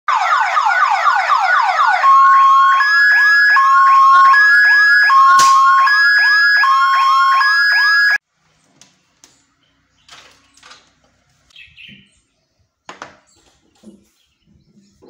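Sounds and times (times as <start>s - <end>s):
rising whoop siren: 0.1s - 8.2s
two-tone hi-lo siren wail: 0.1s - 8.2s.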